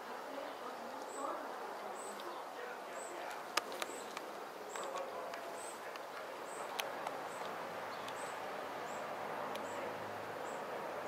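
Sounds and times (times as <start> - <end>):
steady outdoor hiss: 0.0 - 11.0
wasp scraping wood crackling clicks: 3.2 - 8.2.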